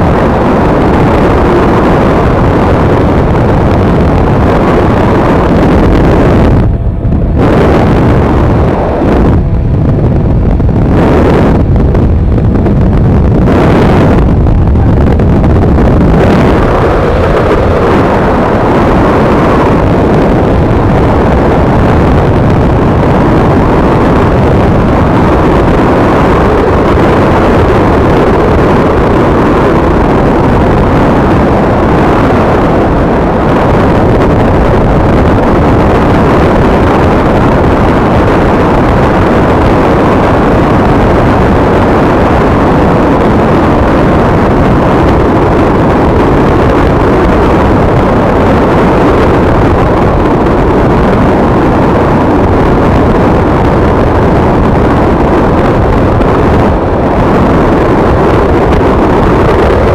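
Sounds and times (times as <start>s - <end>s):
wind buffeting microphone: 0.0s - 59.9s
motorcycle engine running: 3.0s - 28.0s.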